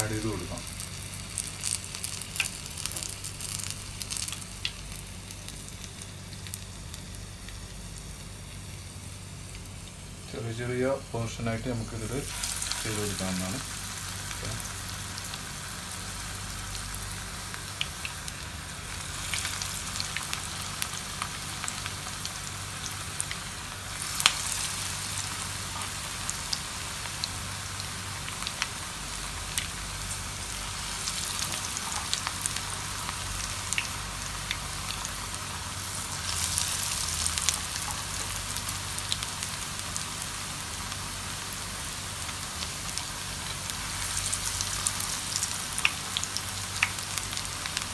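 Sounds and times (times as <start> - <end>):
oil popping and crackling: 0.0 - 8.0, 42.2 - 47.9
fritters sizzling in hot oil: 0.0 - 47.9.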